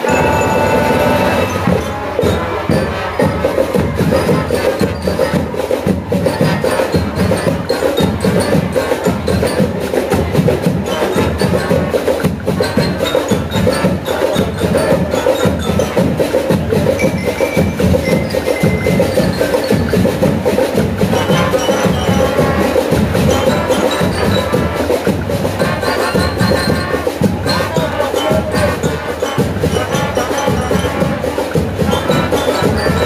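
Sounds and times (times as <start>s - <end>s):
brass and saxophones playing: 0.0s - 9.6s, 10.8s - 16.4s, 19.3s - 33.0s
marching drum beat: 0.0s - 33.0s.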